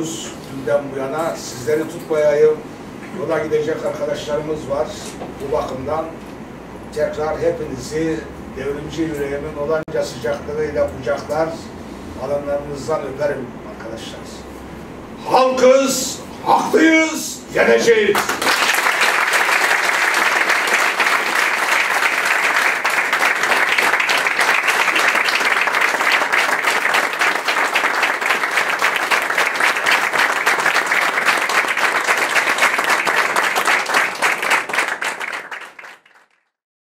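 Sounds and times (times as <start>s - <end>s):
people applauding: 18.1s - 36.6s.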